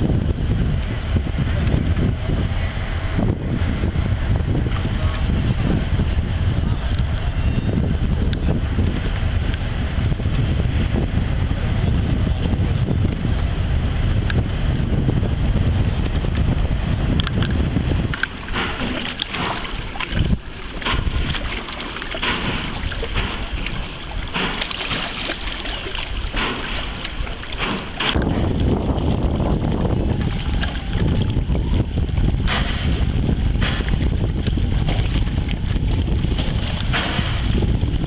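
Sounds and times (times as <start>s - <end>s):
wind buffeting microphone: 0.0s - 38.0s
water lapping against rocks: 15.6s - 38.0s.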